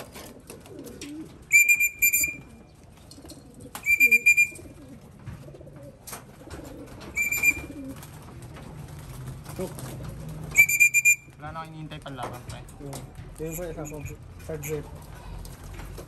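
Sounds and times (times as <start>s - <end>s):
pigeons cooing softly: 0.0s - 10.7s.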